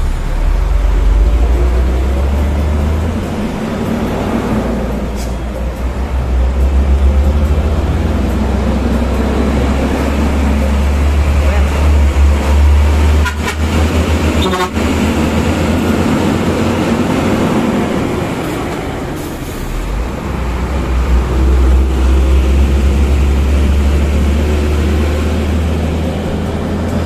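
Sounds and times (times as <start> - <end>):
road and wind noise: 0.0 - 27.0
truck diesel engine droning: 0.0 - 27.0
horn blast: 11.2 - 15.1.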